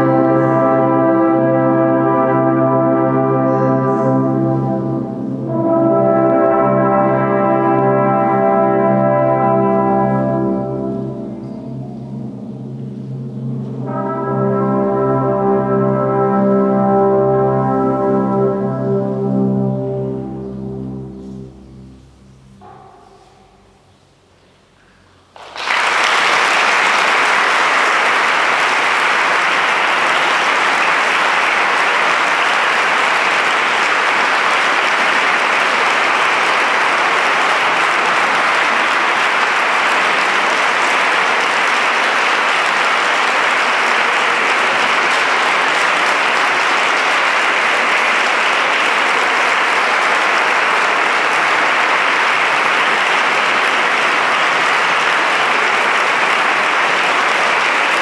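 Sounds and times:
audience applauding: 25.3 - 58.0.

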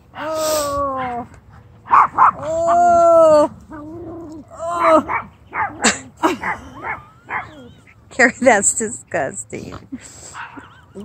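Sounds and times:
dog whining: 2.3 - 8.0.

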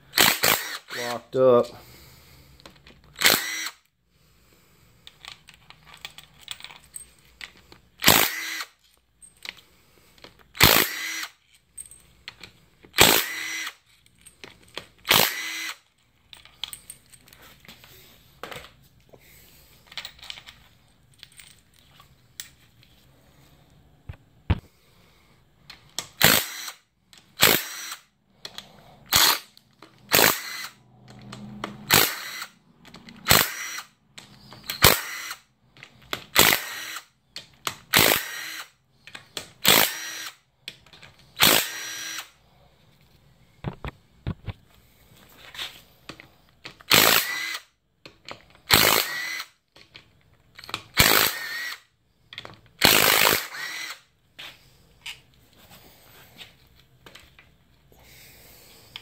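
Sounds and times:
cordless drill whining: 0.2 - 1.2, 3.2 - 3.9, 8.0 - 8.8, 10.6 - 11.4, 13.0 - 13.8, 15.0 - 15.9, 26.2 - 26.8, 27.4 - 28.1, 29.1 - 30.8, 31.9 - 32.6, 33.2 - 35.5, 36.3 - 37.1, 37.9 - 38.7, 39.6 - 40.4, 41.3 - 42.4, 46.8 - 47.7, 48.7 - 49.5, 51.0 - 51.9, 52.8 - 54.0.

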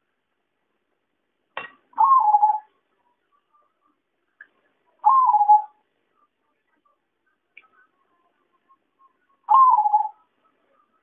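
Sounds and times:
dove cooing: 2.0 - 2.7, 5.0 - 5.8, 9.5 - 10.2.

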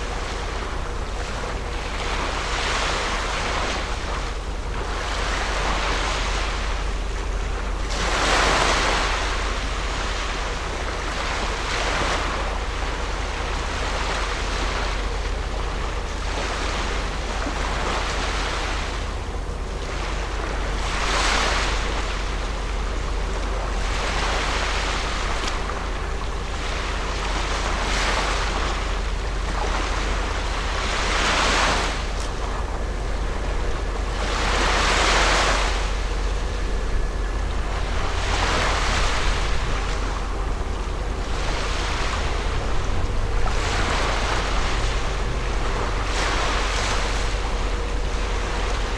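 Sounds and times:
small waves on rocky shore: 0.0 - 19.0, 19.9 - 48.9
steady low rumble: 0.0 - 48.9.

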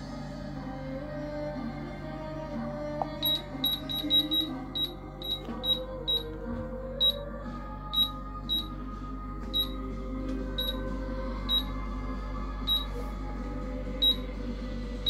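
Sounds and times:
short high beeps: 3.2 - 6.2.

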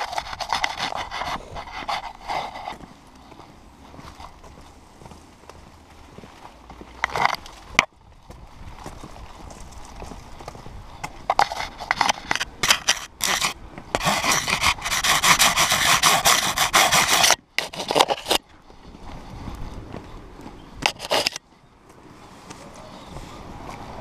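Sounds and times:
leaves rustling against camera: 0.0 - 24.0
dog footfalls on pavement: 2.7 - 11.3.

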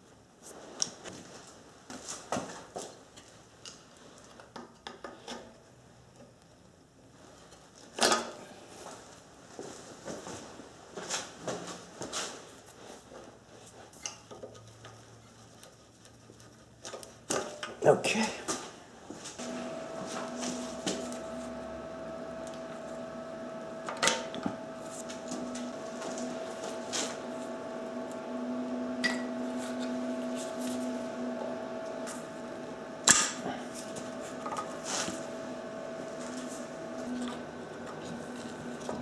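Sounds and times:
steady hum: 14.6 - 39.0.

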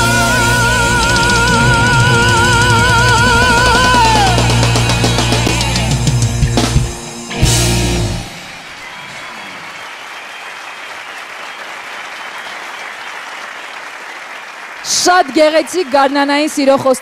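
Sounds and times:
live band playing: 0.0 - 8.8
audience applauding: 8.2 - 17.0.

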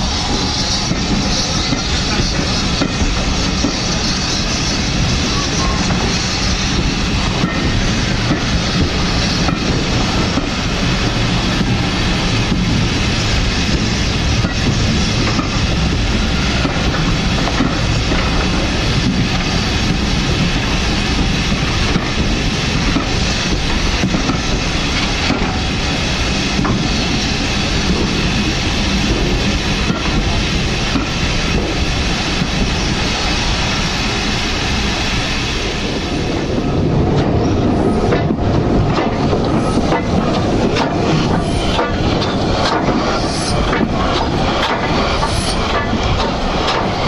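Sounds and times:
train wheels rumbling on rails: 0.0 - 47.0
wheels clicking over rail joints: 38.1 - 47.0.

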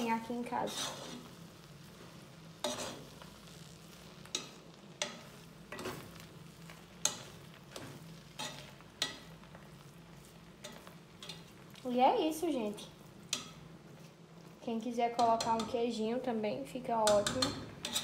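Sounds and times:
spatula scraping a pot: 0.4 - 1.4, 2.6 - 3.6, 4.3 - 11.8, 17.0 - 18.0.

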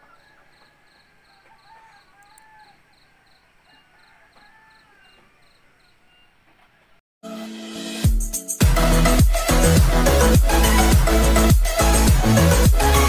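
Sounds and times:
cricket chirping: 0.0 - 6.3.

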